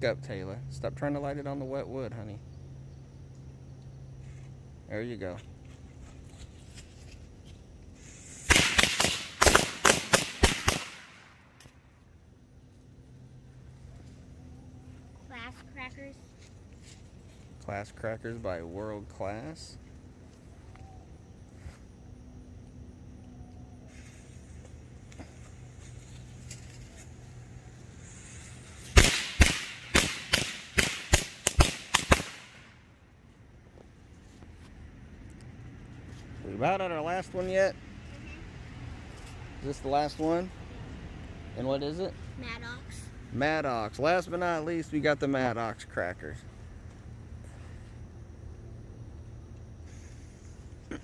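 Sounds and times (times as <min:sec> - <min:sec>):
fuse hiss: 0:07.9 - 0:11.3, 0:27.6 - 0:32.8, 0:49.8 - 0:50.8
firecrackers banging: 0:08.0 - 0:11.5, 0:28.0 - 0:32.8.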